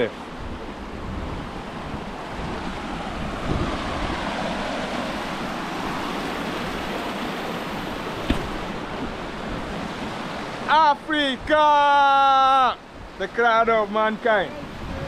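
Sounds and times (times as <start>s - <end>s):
water rushing over rocks: 1.5s - 13.0s.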